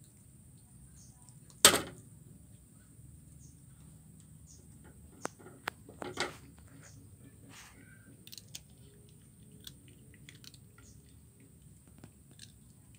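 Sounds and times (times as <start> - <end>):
kitten crunching fish bones: 7.7 - 12.9.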